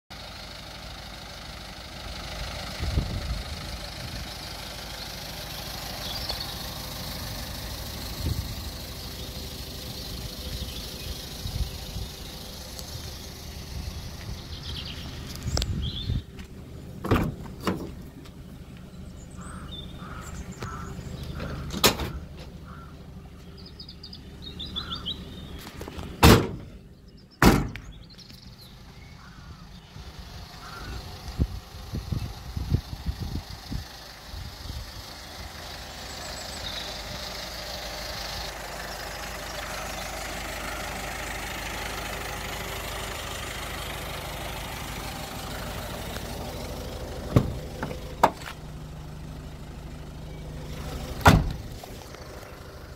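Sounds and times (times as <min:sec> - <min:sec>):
birds chirping: 0:03.7 - 0:52.9
van doors clunking: 0:14.7 - 0:18.4, 0:19.4 - 0:23.2, 0:24.8 - 0:26.8, 0:27.4 - 0:28.0, 0:47.2 - 0:49.2, 0:50.8 - 0:52.2.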